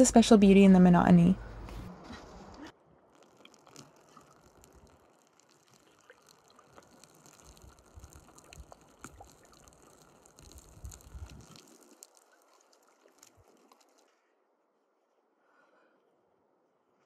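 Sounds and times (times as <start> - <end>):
faint trickling water: 3.0 - 14.2
small ticks and drips: 3.1 - 14.2.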